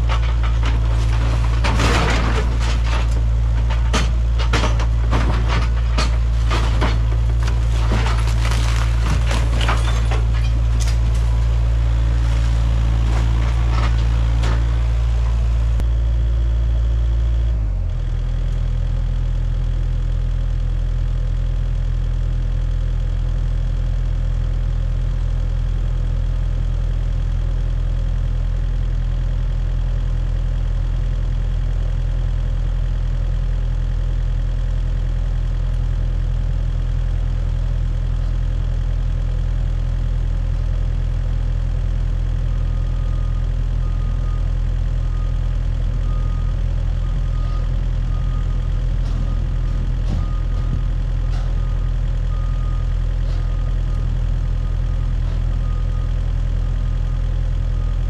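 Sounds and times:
debris clattering and crunching: 0.0s - 15.8s
excavator diesel engine: 0.0s - 58.0s.

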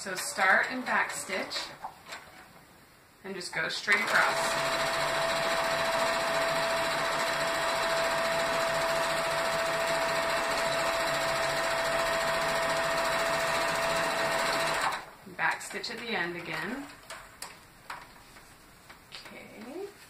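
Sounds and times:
electric sewing machine running: 0.1s - 1.8s, 3.9s - 15.1s.

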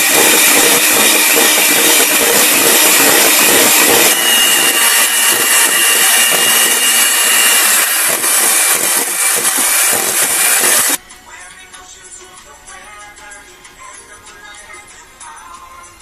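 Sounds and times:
electric hand mixer whisking: 0.0s - 11.0s.

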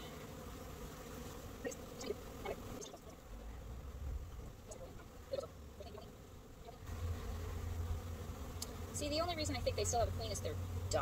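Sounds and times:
honeybees humming: 0.0s - 11.0s
low rumble: 3.2s - 5.1s.

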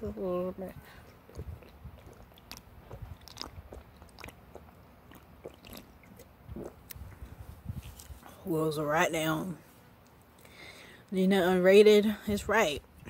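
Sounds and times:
faint gulps: 0.8s - 8.4s
person drinking from a can: 1.1s - 8.2s
mouth clicks: 1.3s - 7.3s.

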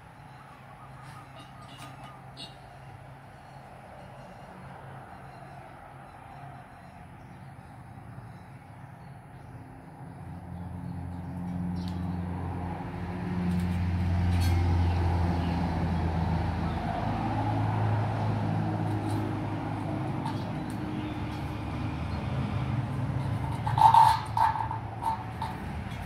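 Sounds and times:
vehicle engine droning: 9.9s - 26.0s.

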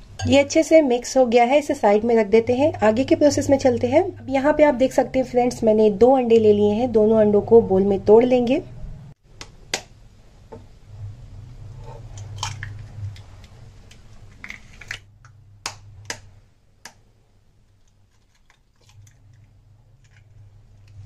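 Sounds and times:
low steady hum: 0.0s - 21.0s
eggshells crackling: 17.7s - 21.0s.

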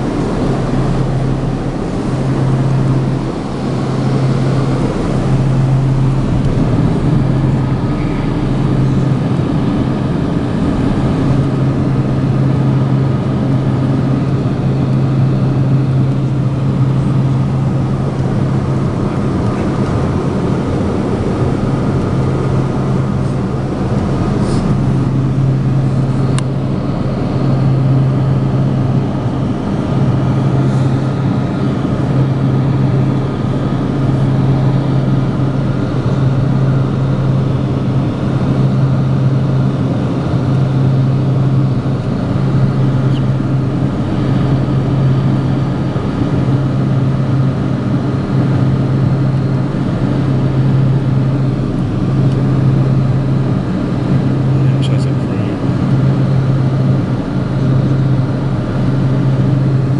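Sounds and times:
turboprop engines droning: 0.0s - 59.9s.

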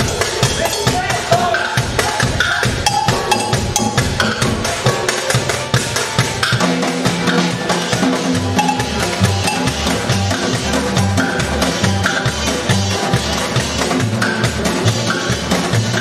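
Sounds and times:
washboard and drum rhythm: 0.0s - 16.0s
plucked double bass: 2.3s - 4.9s, 6.5s - 16.0s.

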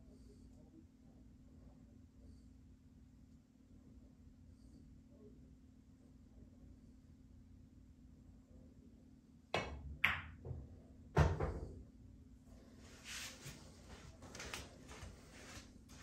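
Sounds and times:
cue tip hitting cue ball: 9.6s - 10.5s
ball thudding: 9.6s - 10.6s
pool balls clicking: 9.6s - 10.6s
faint brushing: 12.7s - 16.0s.

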